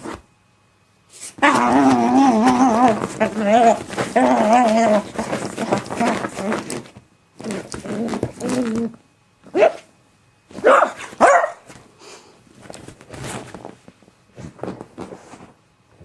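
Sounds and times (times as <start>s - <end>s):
dog barking: 9.5s - 9.9s, 10.6s - 11.7s.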